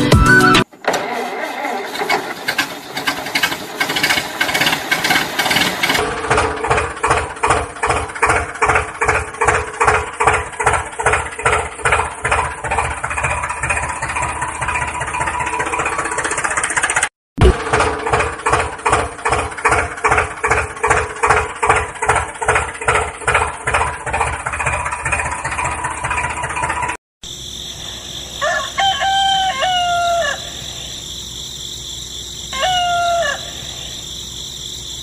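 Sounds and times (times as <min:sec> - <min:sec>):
engine running: 0:00.0 - 0:35.0
rooster crowing: 0:27.9 - 0:31.1, 0:32.4 - 0:34.2.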